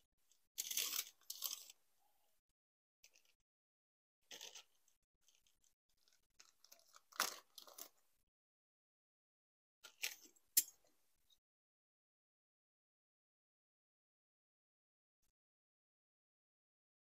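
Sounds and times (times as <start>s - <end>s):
plastic parts crinkling: 0.6s - 1.8s.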